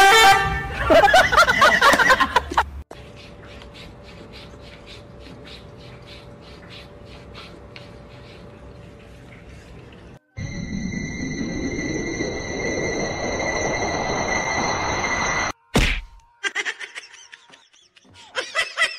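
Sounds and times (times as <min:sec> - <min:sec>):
loud wavering sound: 0:10.3 - 0:15.8.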